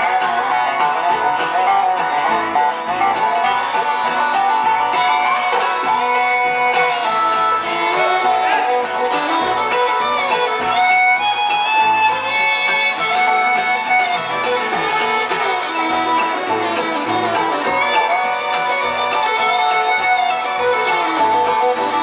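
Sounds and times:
bluegrass band playing: 0.0s - 22.0s
fiddle: 0.0s - 22.0s.

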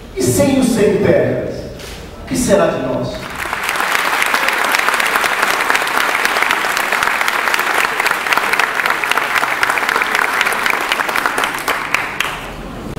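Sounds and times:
audience applause: 3.2s - 12.7s.

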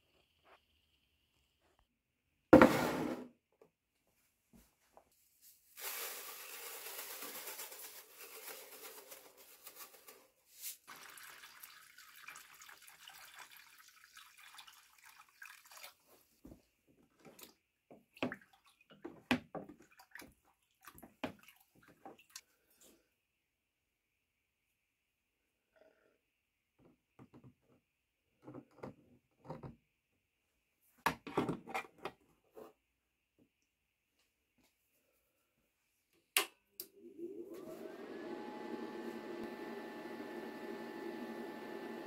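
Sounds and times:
water pouring into plastic tub: 5.8s - 10.2s, 10.8s - 16.3s.

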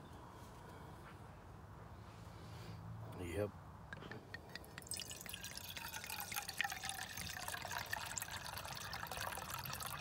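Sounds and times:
wine pouring into metal mug: 4.5s - 10.0s.

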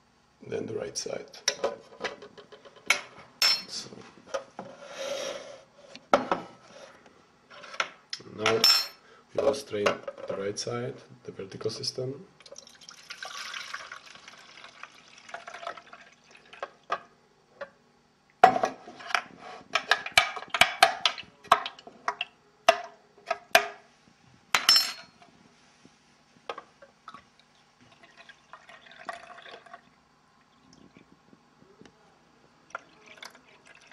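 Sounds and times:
juice pouring through strainer: 12.4s - 16.9s, 27.0s - 31.2s, 32.7s - 33.9s.

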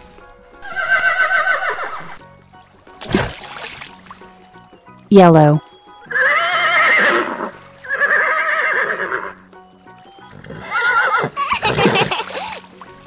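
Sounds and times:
soft background music: 0.0s - 13.0s
horse neighing: 0.6s - 2.2s, 6.1s - 9.4s, 10.3s - 11.8s.

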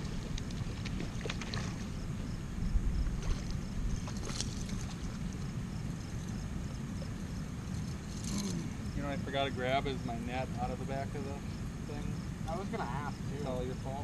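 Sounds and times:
wind rumbling on microphone: 0.0s - 10.6s.

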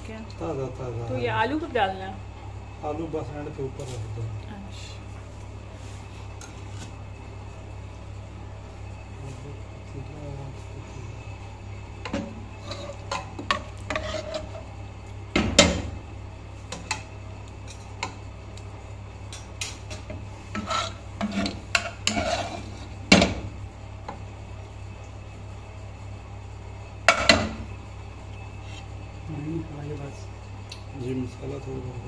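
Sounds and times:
metal ladle scraping a pot: 12.1s - 14.7s, 19.9s - 23.0s.

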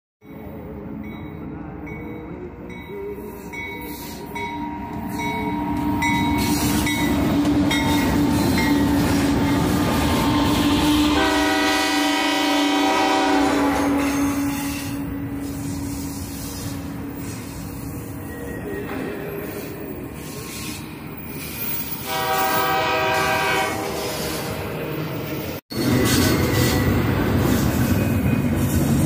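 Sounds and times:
train rumbling past: 0.3s - 29.0s
train horn blast: 10.0s - 15.3s, 22.0s - 24.4s.

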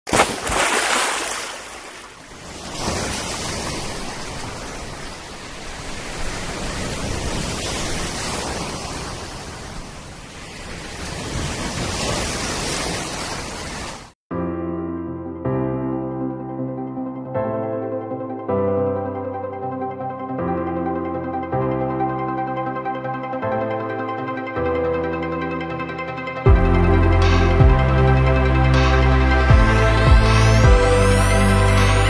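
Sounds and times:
sea surf breaking: 0.1s - 14.2s
music: 14.3s - 32.0s.

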